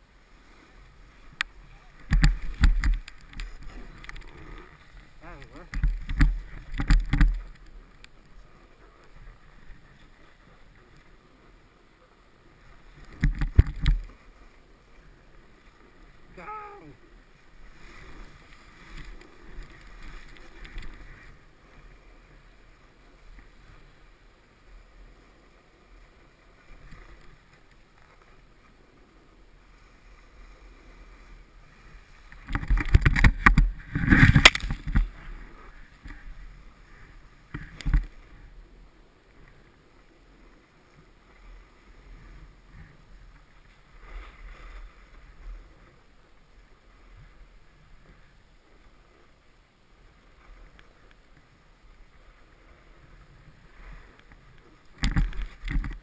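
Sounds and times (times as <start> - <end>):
snowboard scraping over snow: 0.0 - 6.6.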